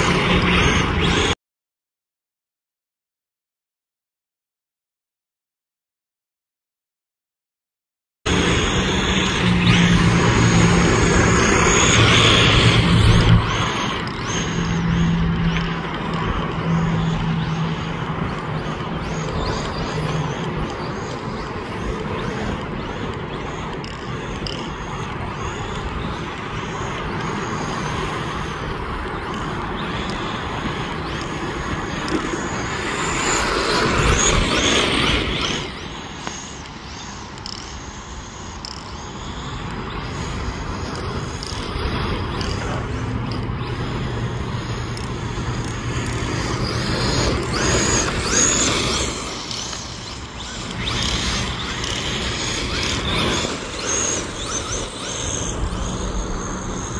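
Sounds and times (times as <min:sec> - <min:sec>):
toy car motor hum: 0:00.0 - 0:01.4, 0:08.3 - 0:56.9
wheels scrabbling in sand: 0:08.3 - 0:56.9.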